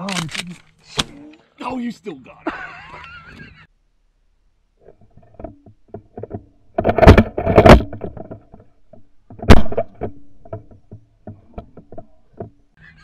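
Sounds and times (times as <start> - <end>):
shotgun blasts: 9.5 - 9.9.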